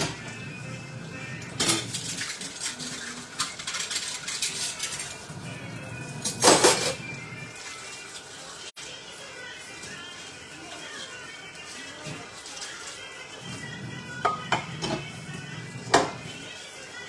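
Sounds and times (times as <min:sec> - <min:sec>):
dishes and cutlery clinking: 0:01.5 - 0:05.2, 0:06.2 - 0:07.1, 0:14.2 - 0:15.1.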